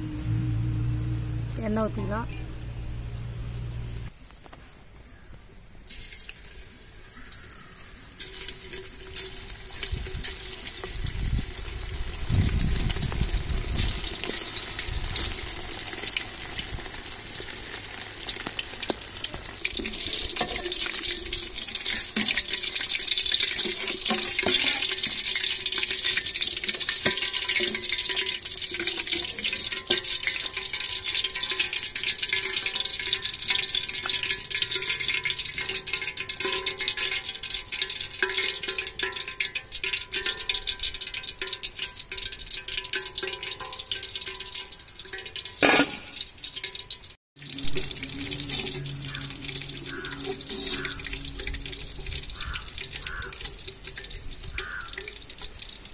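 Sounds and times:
low rumble: 0.0s - 4.1s, 47.4s - 53.9s
chicken deep-frying in hot oil: 5.8s - 55.9s.

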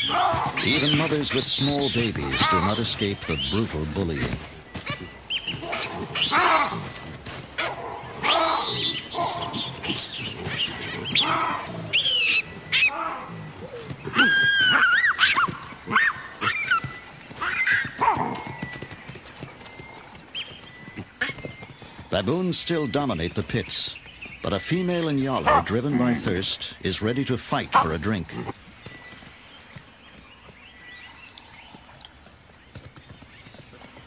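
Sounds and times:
baboons screaming: 0.0s - 7.0s, 7.6s - 18.5s.

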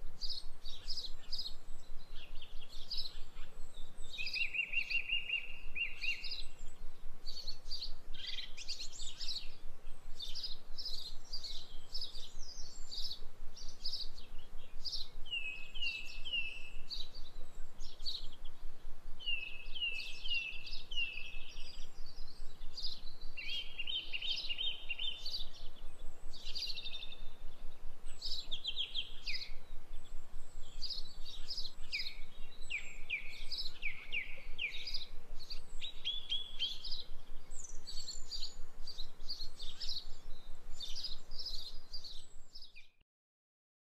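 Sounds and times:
birdsong: 0.1s - 43.0s.

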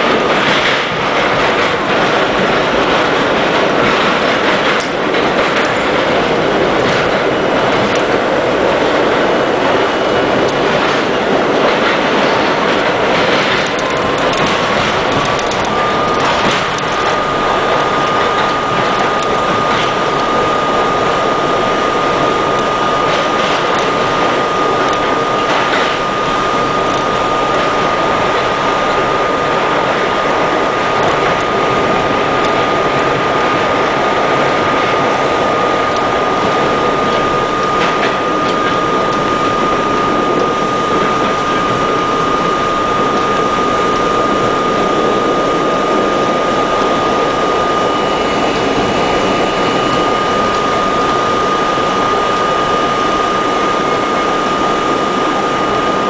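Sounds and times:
train wheels roaring on rail: 0.0s - 56.0s
faint rail-joint clicks: 10.4s - 20.3s, 22.6s - 26.0s.

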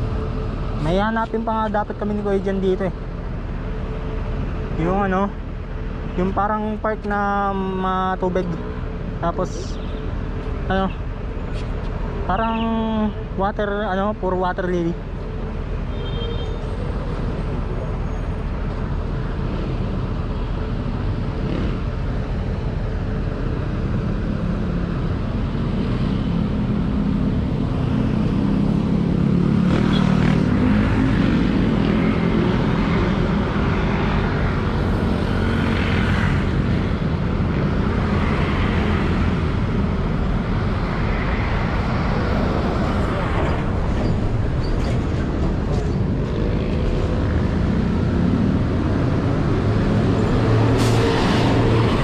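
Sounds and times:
passing motor vehicles rumbling: 0.0s - 52.0s.

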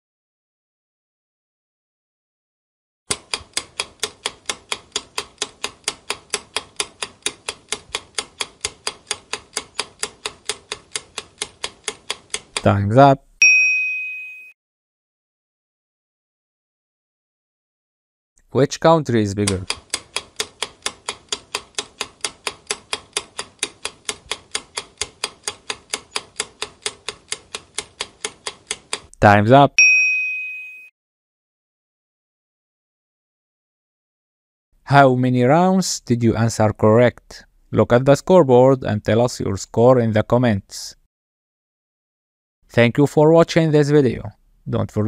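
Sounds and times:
clock-like timer ticks: 3.1s - 12.8s, 19.1s - 29.2s
countdown timer ticking: 19.4s - 29.1s.

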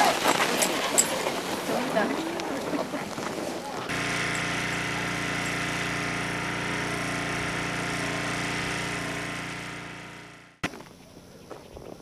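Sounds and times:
small engine running: 3.8s - 10.7s.

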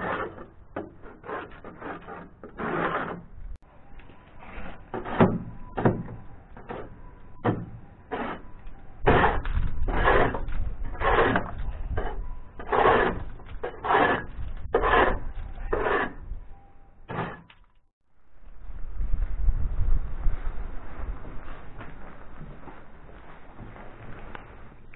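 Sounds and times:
hand scraping boat hull: 0.0s - 3.3s, 9.1s - 16.2s.

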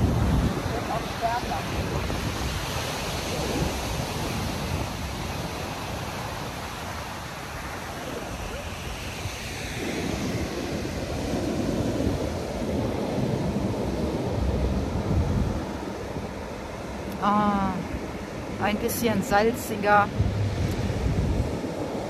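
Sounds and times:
heavy surf breaking on beach: 0.0s - 22.0s
wind buffeting microphone: 0.0s - 22.0s
deep rumble: 20.0s - 22.0s.

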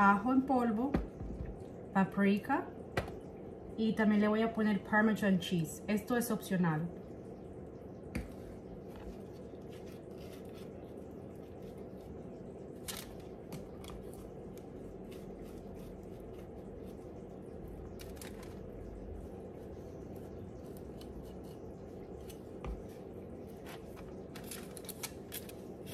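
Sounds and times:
low hum: 0.0s - 25.9s
knife scraping spread on bread: 9.6s - 10.8s.

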